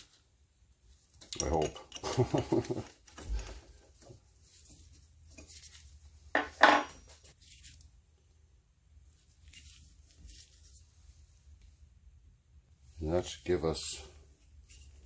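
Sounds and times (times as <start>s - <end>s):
metal tools clinking: 1.2s - 2.5s.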